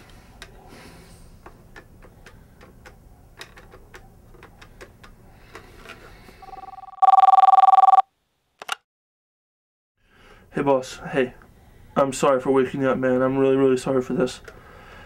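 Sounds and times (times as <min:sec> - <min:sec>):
two-tone telephone ringer: 0:06.4 - 0:08.0.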